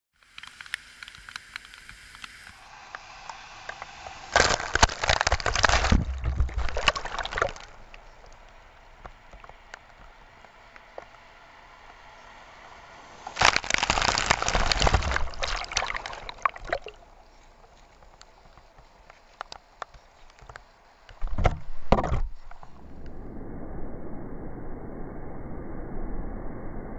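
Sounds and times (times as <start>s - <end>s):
rain: 0.1s - 21.2s
running water: 4.3s - 8.4s, 13.4s - 17.2s
feet splashing through water: 5.6s - 8.0s, 13.4s - 17.1s.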